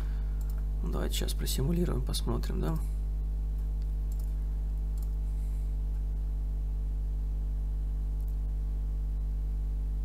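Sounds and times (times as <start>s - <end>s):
low electrical hum: 0.0s - 10.0s
faint mouse clicks: 0.4s - 0.7s, 3.6s - 5.2s.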